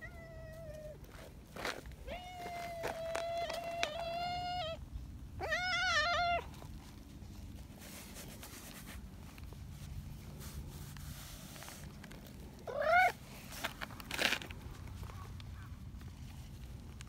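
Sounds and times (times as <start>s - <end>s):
cat meowing: 5.4s - 6.5s, 12.7s - 13.2s.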